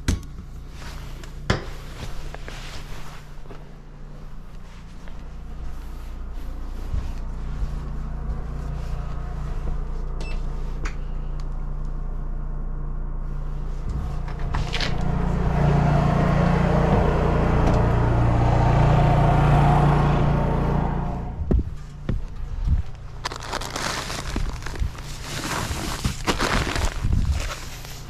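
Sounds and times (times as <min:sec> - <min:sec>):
small engine idling: 0:21.9 - 0:28.0.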